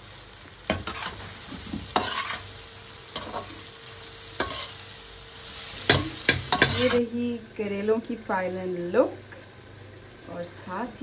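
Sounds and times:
food sizzling: 0.0 - 11.0
spoon scraping and knocking pan: 0.7 - 2.4, 4.4 - 4.8, 5.8 - 7.0.

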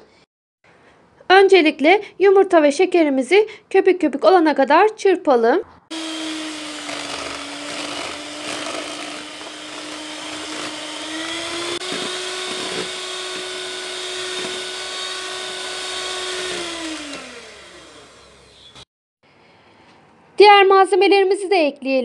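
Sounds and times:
electric hand mixer running: 5.9 - 18.9.

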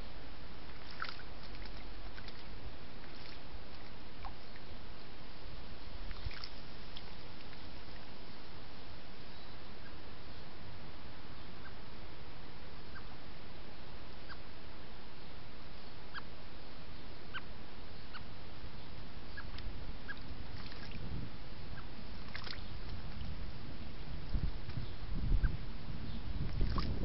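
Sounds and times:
background hiss: 0.0 - 27.0
faint bird chirps: 9.2 - 10.5, 12.8 - 13.2, 14.2 - 14.5, 16.9 - 20.8
wind rumble on microphone: 18.8 - 27.0.

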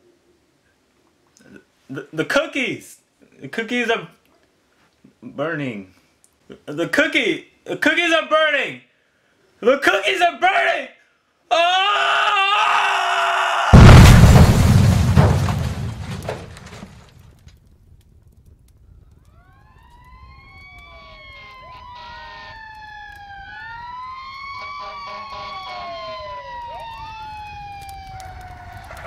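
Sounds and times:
explosion rumbling: 13.7 - 17.0
emergency sirens wailing: 19.2 - 29.0.

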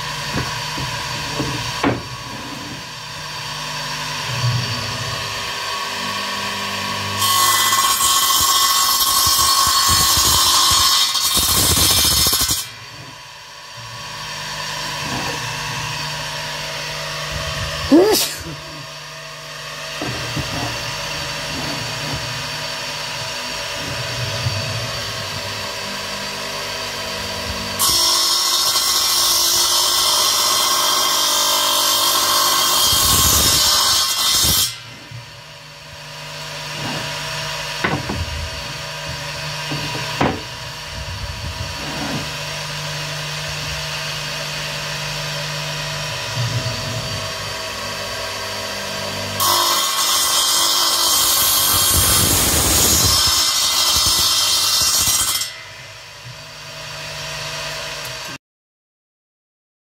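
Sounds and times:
radial arm saw running: 0.0 - 34.4, 35.8 - 54.8
saw blade cutting wood: 0.0 - 58.4
sharp knocks: 37.8 - 38.5, 39.1 - 40.6.

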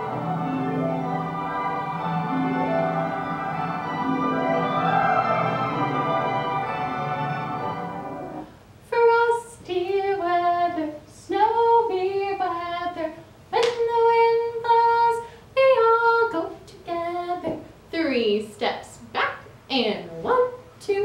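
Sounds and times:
orchestral music: 0.0 - 8.5
woman singing unaccompanied: 8.8 - 21.0.

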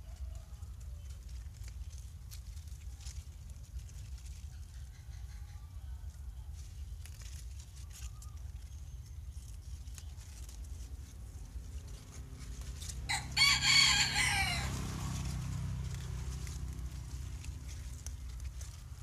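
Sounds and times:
leaves rustling and snapping: 0.0 - 5.4, 6.1 - 19.0
rooster crowing: 13.1 - 15.0.

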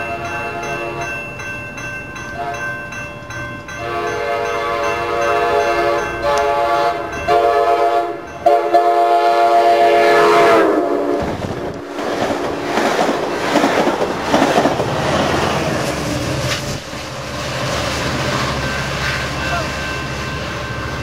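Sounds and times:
train cars rushing past: 0.0 - 21.0
train air horn blasts: 3.8 - 11.3
wheels clacking over rail joints: 11.2 - 21.0.

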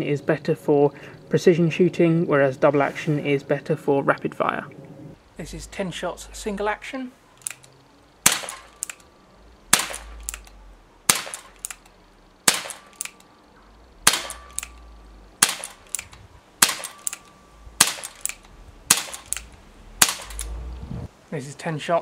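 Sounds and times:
air pistol shots: 7.4 - 9.0, 9.7 - 13.3, 14.0 - 20.6
pistol hammer cocking click: 7.4 - 9.1, 9.8 - 13.3, 14.1 - 20.6.

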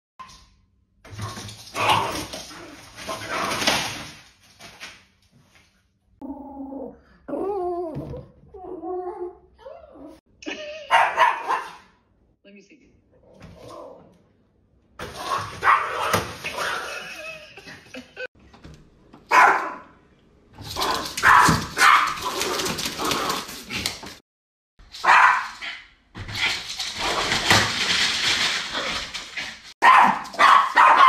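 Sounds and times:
small dog barking: 10.9 - 11.8, 19.3 - 19.9, 21.2 - 22.2, 25.0 - 25.5, 29.8 - 31.0.

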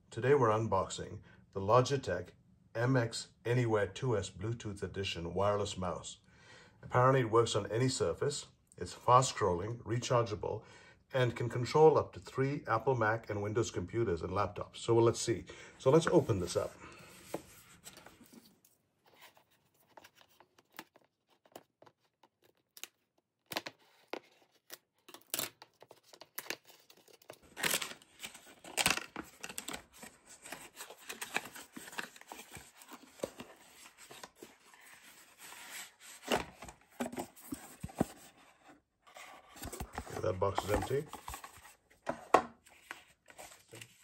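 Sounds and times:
cardboard tearing and rustling: 23.6 - 38.5.

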